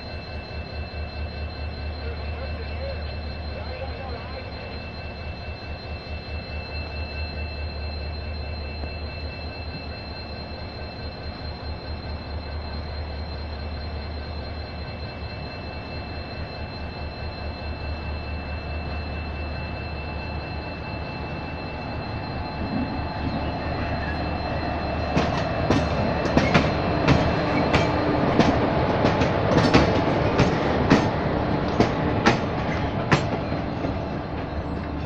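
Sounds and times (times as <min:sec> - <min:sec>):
high-pitched whines: 0:00.0 - 0:35.0
low locomotive hum: 0:00.0 - 0:35.0
wheels rumbling on track: 0:21.4 - 0:35.0.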